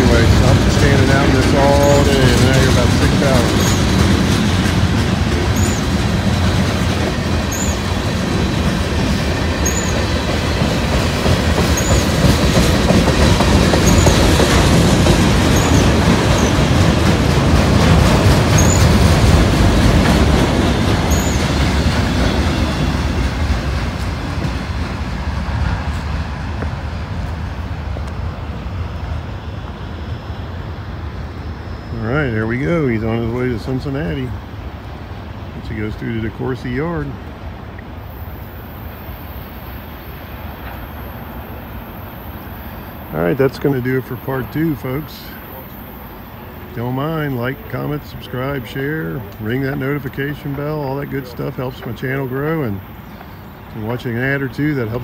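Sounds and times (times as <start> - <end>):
train wheels clattering over rails: 0.0 - 29.9, 40.0 - 55.0.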